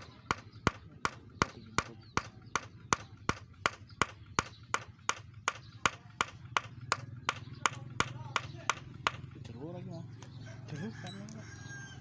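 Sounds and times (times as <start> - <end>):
hammer hitting a nail: 0.0 - 9.3.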